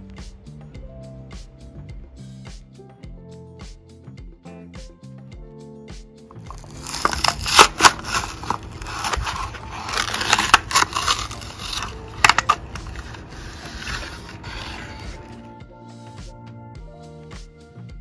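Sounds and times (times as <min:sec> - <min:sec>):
plastic blister crinkling: 0:06.3 - 0:15.4
sharp plastic snaps: 0:06.3 - 0:15.4.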